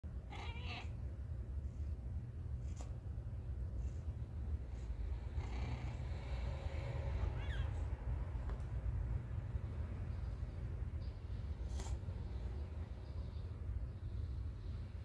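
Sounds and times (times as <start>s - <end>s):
cat purring: 4.7s - 7.8s
high cat chirp: 7.2s - 7.9s.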